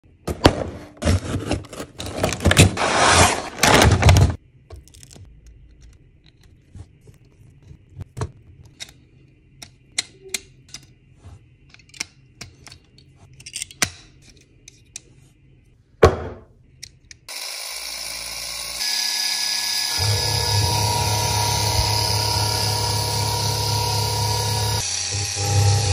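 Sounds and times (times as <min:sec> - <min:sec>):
toy motor whirring: 0:17.3 - 0:25.9.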